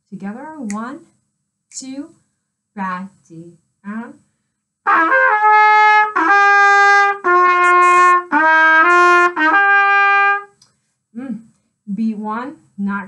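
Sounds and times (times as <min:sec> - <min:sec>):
trumpet playing: 0:04.9 - 0:10.5.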